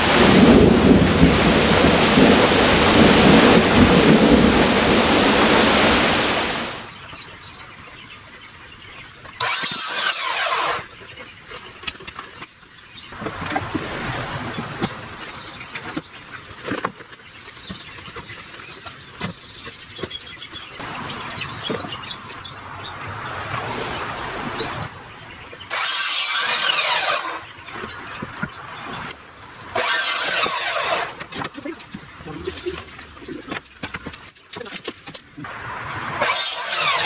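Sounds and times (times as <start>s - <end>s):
loud steady rushing noise: 0.0s - 6.9s
miter saw cutting wood: 9.4s - 10.9s, 25.7s - 27.5s, 29.7s - 31.3s, 35.5s - 37.0s.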